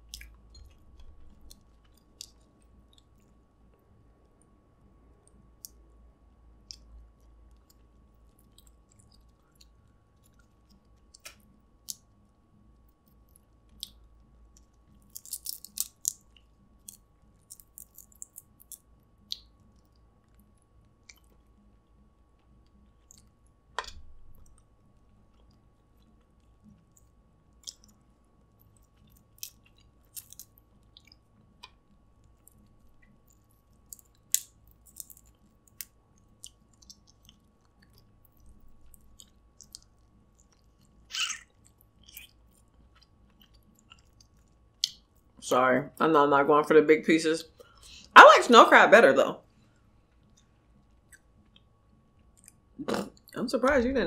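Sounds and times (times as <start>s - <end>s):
soft chewing: 0.0s - 45.4s, 47.4s - 48.2s, 49.4s - 53.9s
crab shell cracking: 7.5s - 12.2s, 13.0s - 21.3s, 25.3s - 45.1s.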